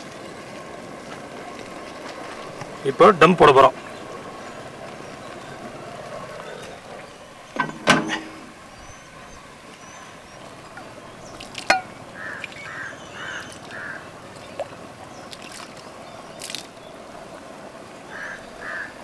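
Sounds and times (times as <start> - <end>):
metal pot knocks: 7.6 - 8.6, 11.7 - 12.0
liquid pouring and splashing: 11.2 - 12.7, 14.5 - 16.9.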